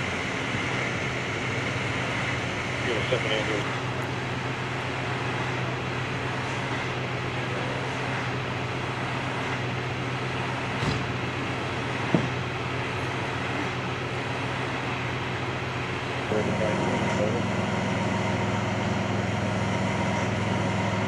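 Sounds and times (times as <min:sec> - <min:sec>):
diesel engine idling: 0:00.0 - 0:21.0
short knocks: 0:12.1 - 0:12.4.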